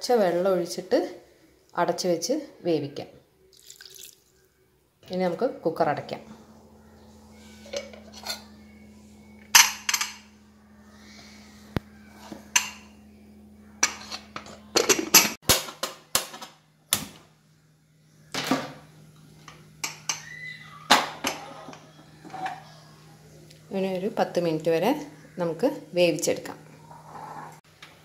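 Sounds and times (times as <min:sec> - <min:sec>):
pressure cooker metal clanks: 0:09.5 - 0:10.2, 0:13.8 - 0:16.5.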